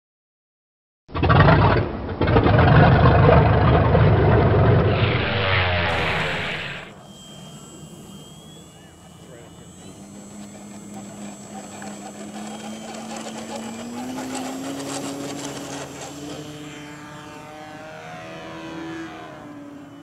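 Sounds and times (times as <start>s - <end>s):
model airplane motor buzzing: 4.9s - 20.0s.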